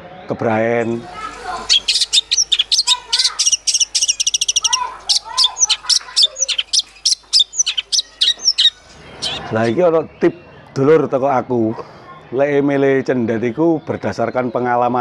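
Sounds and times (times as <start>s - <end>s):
bird chirping and trilling: 0.8s - 10.1s.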